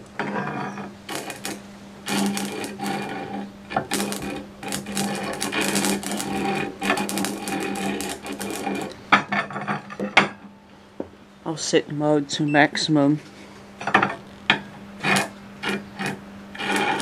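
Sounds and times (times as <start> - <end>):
crackling buzz of arcing sparks: 0.0 - 10.4, 13.7 - 17.0
transformer humming: 0.0 - 10.7, 11.4 - 17.0
sharp electrical snaps: 1.0 - 9.0, 14.2 - 17.0.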